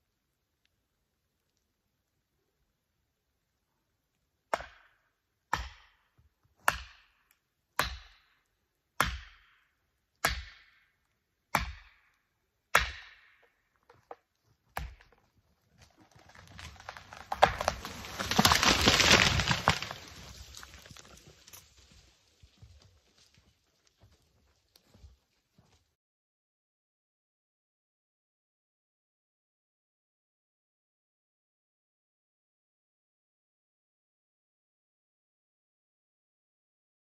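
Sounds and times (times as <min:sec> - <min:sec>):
tree falling through branches: 0:15.7 - 0:24.1.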